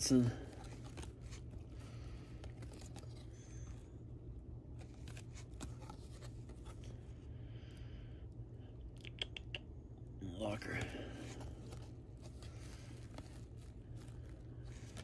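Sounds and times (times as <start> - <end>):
steady low hum: 0.0 - 15.0
cards clicking and scraping: 0.4 - 3.9, 4.7 - 7.0, 10.7 - 15.0.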